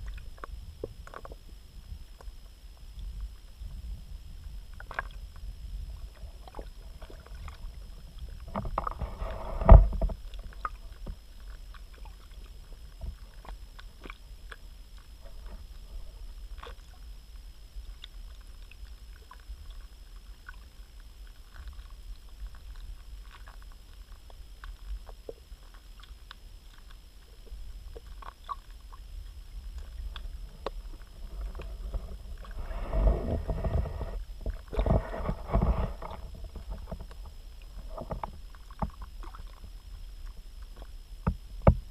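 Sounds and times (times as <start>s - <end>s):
faint clicks and ticks: 0.0s - 41.9s
low underwater rumble: 0.0s - 41.9s
water sloshing: 21.5s - 41.0s.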